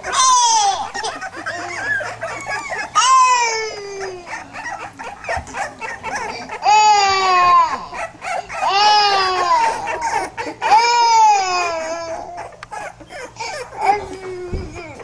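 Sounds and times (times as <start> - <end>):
puppy squeaks: 0.0 - 10.2
puppy wailing: 0.0 - 15.0.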